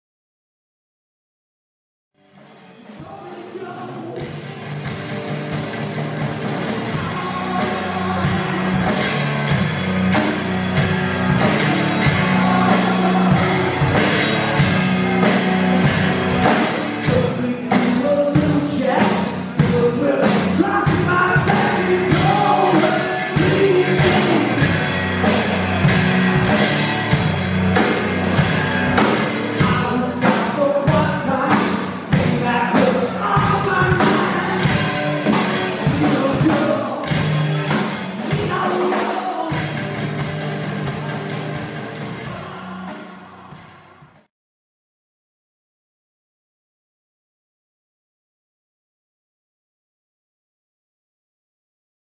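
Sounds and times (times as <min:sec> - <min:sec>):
electric guitar: 0:02.2 - 0:43.8
drum kit played with sticks: 0:02.4 - 0:44.3
man singing: 0:03.0 - 0:04.4, 0:06.8 - 0:09.0, 0:12.0 - 0:14.0, 0:17.0 - 0:24.7, 0:29.6 - 0:34.9, 0:35.7 - 0:37.3, 0:38.2 - 0:39.8, 0:42.2 - 0:44.0.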